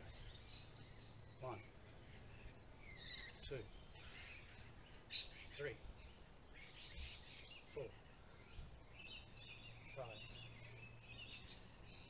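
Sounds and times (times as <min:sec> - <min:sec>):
faint birds chirping: 0:00.0 - 0:12.0
low steady hum: 0:00.0 - 0:12.0.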